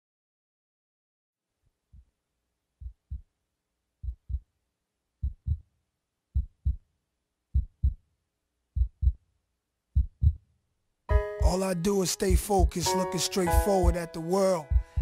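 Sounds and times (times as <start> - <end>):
heartbeat thumps: 2.8 - 3.3, 4.0 - 4.4, 5.2 - 5.6, 6.4 - 6.8, 7.5 - 8.0, 8.8 - 9.2, 10.0 - 10.4, 11.1 - 11.6, 12.3 - 12.9, 13.6 - 14.0, 14.7 - 15.0.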